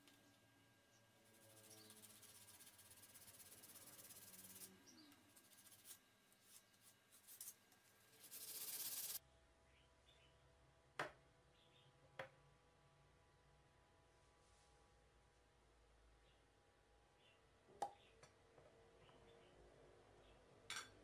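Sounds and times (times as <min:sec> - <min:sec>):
sandpaper rubbing on wood: 0:01.3 - 0:09.2.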